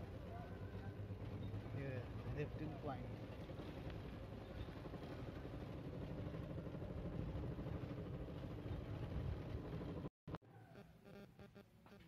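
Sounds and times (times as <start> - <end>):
vehicle engine running: 0.0 - 10.1.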